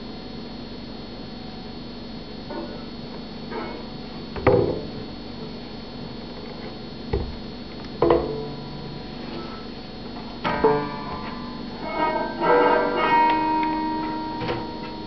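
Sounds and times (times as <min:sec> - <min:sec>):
dull knock on banjo: 0:08.0 - 0:08.5
banjo open strings ringing: 0:10.4 - 0:15.0.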